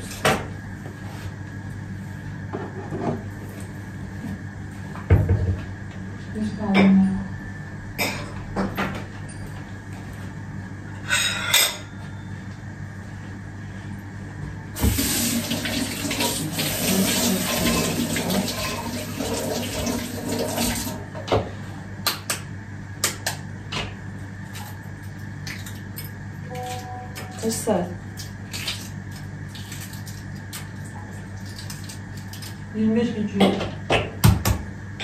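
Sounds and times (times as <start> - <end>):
sink tap running: 14.8 - 21.0.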